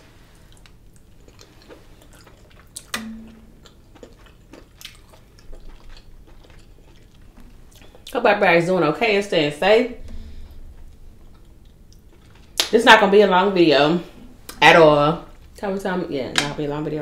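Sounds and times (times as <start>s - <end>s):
person chewing wet food: 0.3s - 8.2s, 10.1s - 12.6s.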